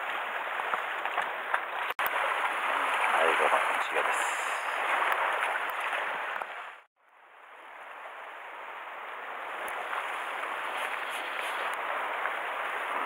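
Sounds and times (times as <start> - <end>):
sea water splashing on rocks: 0.0 - 6.9.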